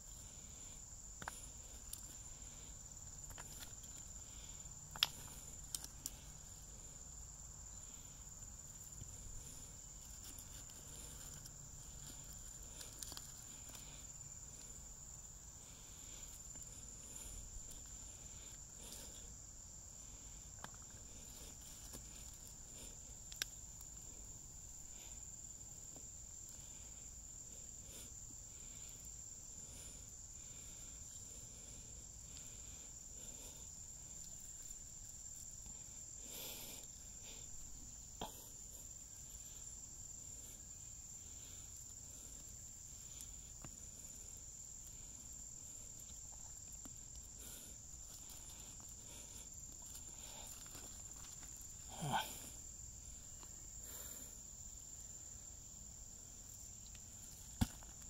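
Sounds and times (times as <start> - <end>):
insect trill: 0.0 - 58.0.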